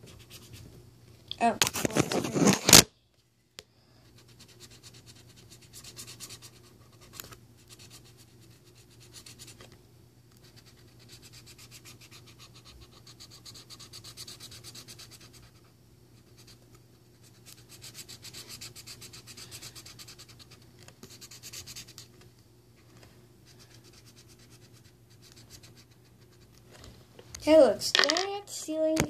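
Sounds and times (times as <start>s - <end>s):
scribbling strokes: 4.2s - 9.6s, 10.4s - 22.1s, 23.4s - 26.5s.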